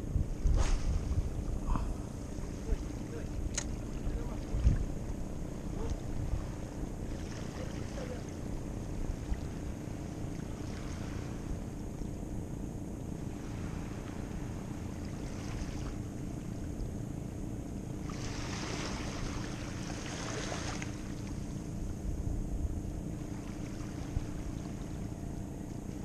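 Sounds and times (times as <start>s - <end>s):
wind rumbling on microphone: 0.0s - 12.3s, 17.9s - 26.0s
small waves lapping: 0.3s - 22.2s, 22.8s - 26.0s.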